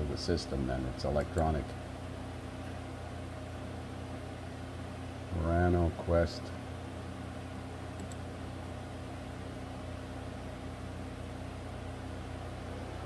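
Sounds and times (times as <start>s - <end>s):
low mechanical hum: 0.0s - 13.0s
faint short clicks: 7.9s - 8.2s.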